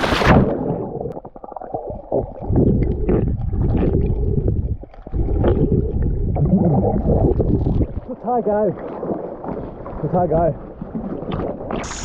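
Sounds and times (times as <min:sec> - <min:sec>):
muffled underwater rumbling and gurgling: 0:00.0 - 0:12.0
bubble clicks: 0:00.3 - 0:08.0
hissy splash and wind noise: 0:02.4 - 0:12.0.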